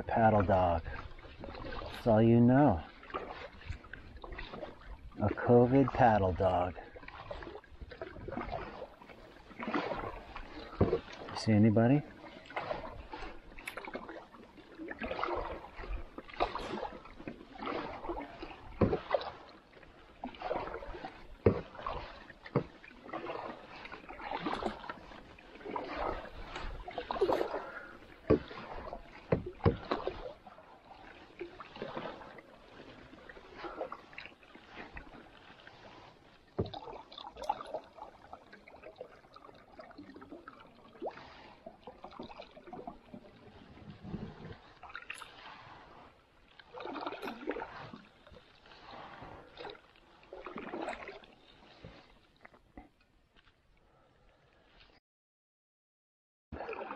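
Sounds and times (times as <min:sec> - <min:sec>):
canoe paddle swishing and splashing: 0:00.0 - 0:55.0, 0:56.5 - 0:56.9.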